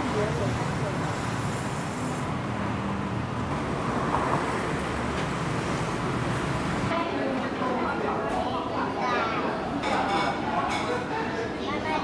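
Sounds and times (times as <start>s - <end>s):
city traffic rumble: 0.0s - 7.0s.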